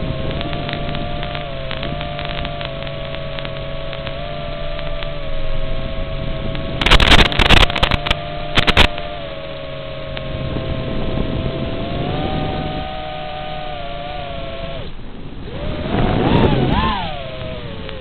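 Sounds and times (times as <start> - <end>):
loud crackling bursts: 0.0 - 9.4
noisy audio link: 0.0 - 18.0
quadcopter motors whining: 0.0 - 18.0.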